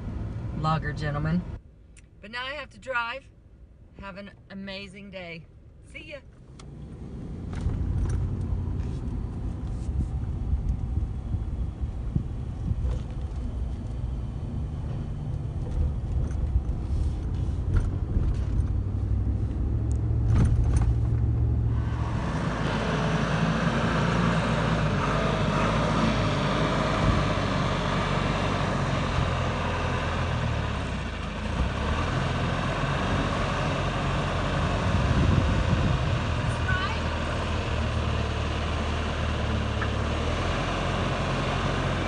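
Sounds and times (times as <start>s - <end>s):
road rumble inside vehicle: 0.0s - 2.2s, 5.4s - 42.0s
diesel engine running loudly: 21.7s - 42.0s.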